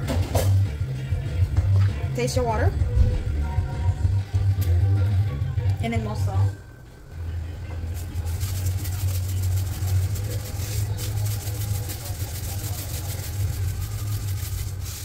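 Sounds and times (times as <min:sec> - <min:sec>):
water boiling in a pot: 0:08.0 - 0:15.0.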